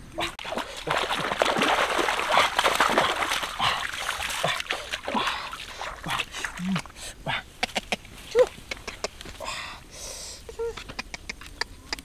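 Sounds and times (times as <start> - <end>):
person wading through water: 0.2 - 9.5.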